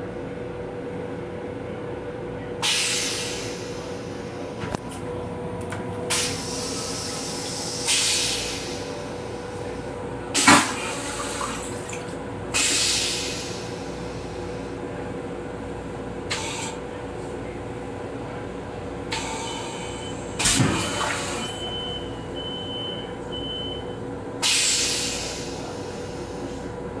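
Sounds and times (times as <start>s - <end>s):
toilet flush clunk: 10.4s - 12.9s, 20.4s - 21.6s
toilet rinse water hissing: 10.4s - 13.6s.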